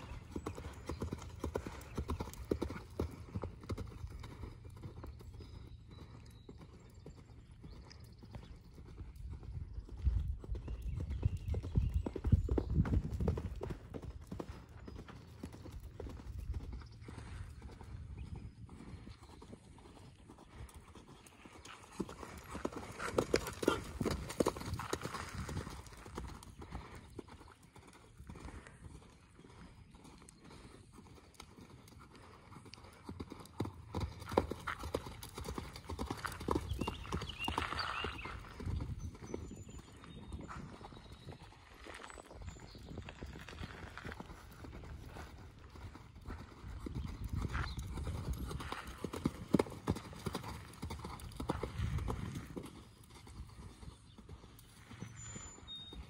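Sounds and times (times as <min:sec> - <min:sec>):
horse hoofbeats on sand: 0:00.0 - 0:29.8, 0:30.4 - 0:56.0.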